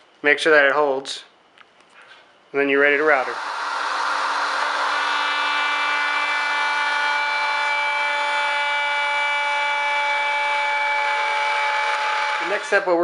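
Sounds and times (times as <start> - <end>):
wood router whining: 3.0 - 13.0.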